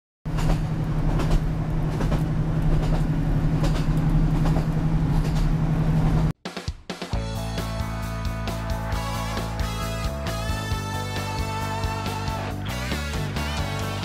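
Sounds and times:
train running rumble: 0.3 - 6.3.

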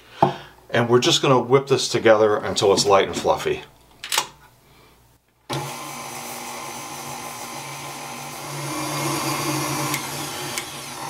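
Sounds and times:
stand mixer motor hum: 5.5 - 11.0.

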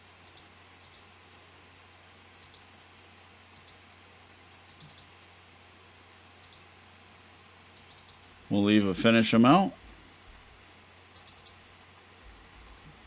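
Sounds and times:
low steady hum: 0.0 - 13.0
computer mouse clicks: 0.2 - 1.1, 2.4 - 2.7, 3.5 - 3.8, 4.6 - 5.1, 6.4 - 6.7, 7.7 - 8.2, 11.1 - 11.6, 12.2 - 13.0.

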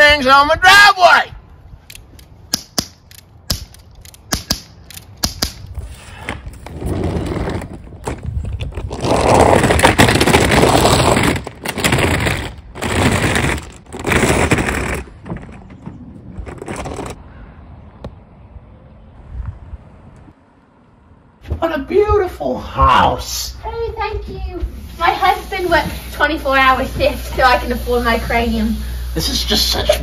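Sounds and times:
cap gun shots: 2.5 - 5.6
suitcase wheels rattling on asphalt: 6.6 - 17.2.

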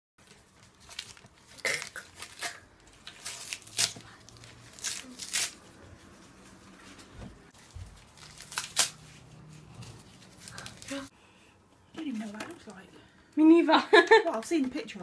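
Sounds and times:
plastic wrapping crinkling and tearing: 0.2 - 5.7, 7.6 - 9.2, 10.0 - 11.1.

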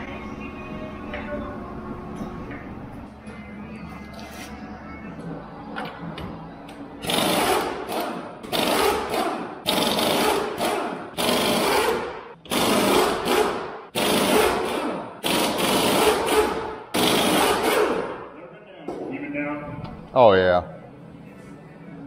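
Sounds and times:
pneumatic impact wrench rattling: 7.0 - 18.1.

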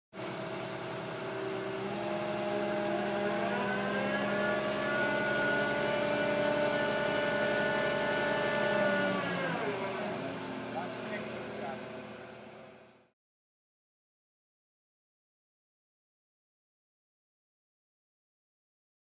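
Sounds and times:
diesel engine revving: 0.4 - 11.9.

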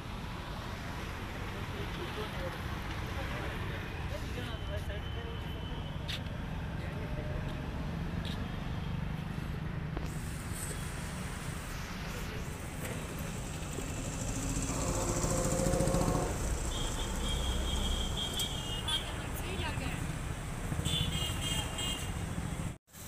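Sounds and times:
road traffic rumble: 0.0 - 23.0
vehicle engine passing close: 10.2 - 18.4.

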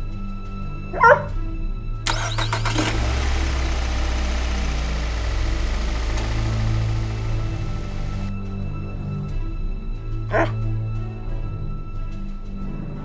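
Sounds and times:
background music: 0.0 - 13.0
car engine starting and running: 2.1 - 8.3.

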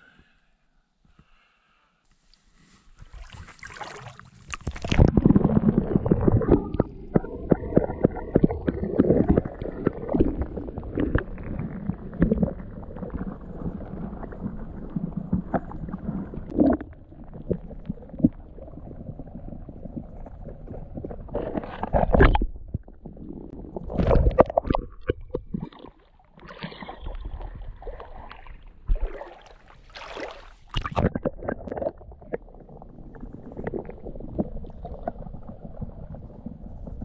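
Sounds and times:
underwater gurgling and rumbling: 3.2 - 37.0
small underwater clicks and knocks: 4.4 - 5.4, 21.0 - 29.1, 30.7 - 32.5.

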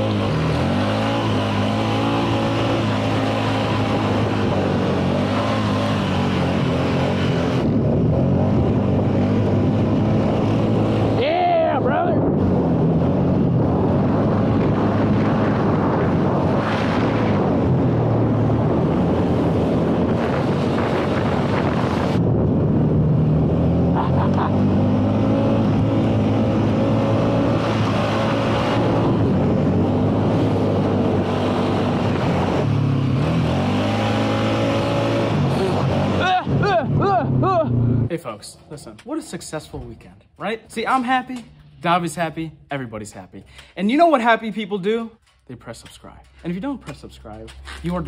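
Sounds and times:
atv engine running: 0.0 - 38.1
wind buffeting microphone: 6.3 - 38.1.

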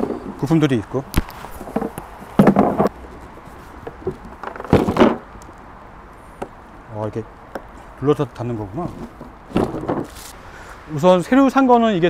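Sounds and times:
cooler clunks and knocks: 1.6 - 2.9, 4.0 - 5.3, 9.0 - 10.2.

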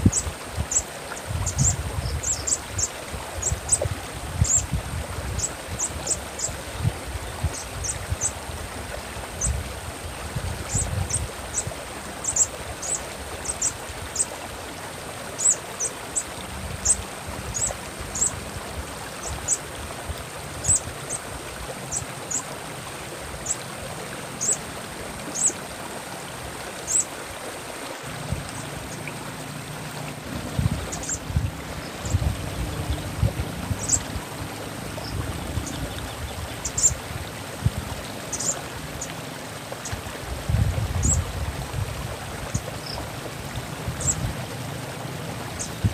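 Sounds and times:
trickling stream water: 0.0 - 45.9
bird chip calls: 1.4 - 3.8, 4.4 - 4.6, 10.7 - 14.3, 15.4 - 15.9, 16.8 - 18.3, 20.6 - 21.2, 24.4 - 24.6, 25.3 - 25.6, 26.9 - 27.1, 33.8 - 34.1, 35.0 - 37.0, 38.3 - 38.6.

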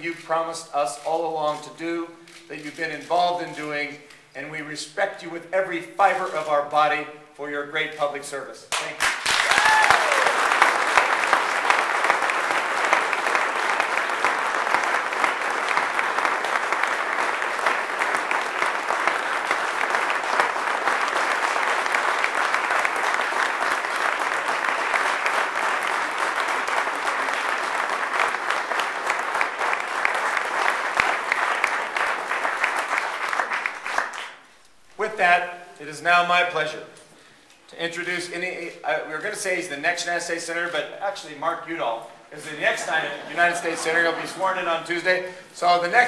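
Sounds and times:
audience applause: 8.8 - 34.5, 43.0 - 44.6.

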